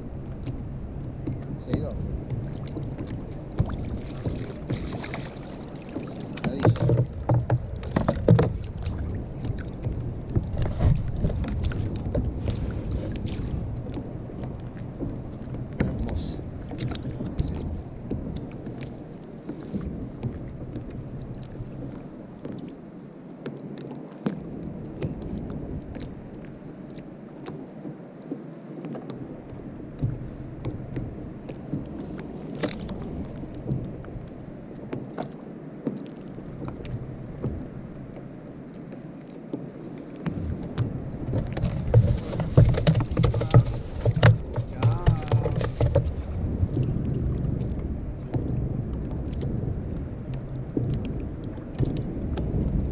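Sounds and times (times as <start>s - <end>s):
water sloshing around kayak: 0.0s - 52.9s
wind on microphone: 0.0s - 52.9s
small knocks and rustles: 1.2s - 22.8s, 38.8s - 46.9s.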